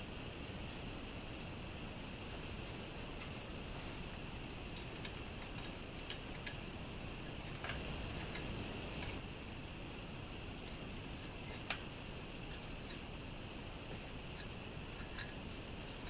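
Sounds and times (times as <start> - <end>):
faint steady hiss: 0.0 - 16.0
metal parts clicking and tapping: 13.9 - 16.0.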